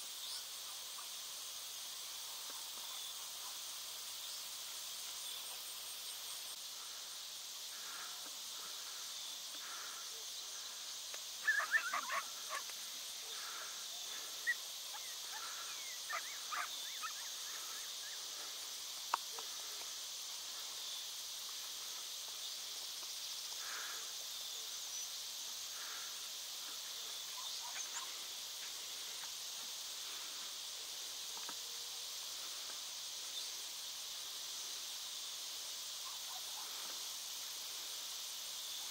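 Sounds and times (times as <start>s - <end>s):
insects chorus: 0.0s - 38.9s
distant yips and barks: 11.4s - 12.6s, 14.4s - 17.4s.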